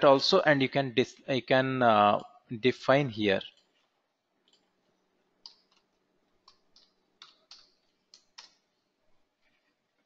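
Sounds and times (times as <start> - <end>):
computer mouse clicks: 3.5 - 4.8, 5.4 - 8.6.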